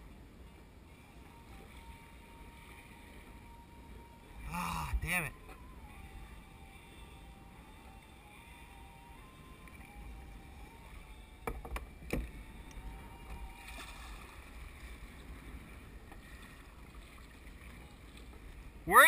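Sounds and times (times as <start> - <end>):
sharp knocks on kayak: 11.4 - 12.3
water sloshing against kayak hull: 11.9 - 18.8.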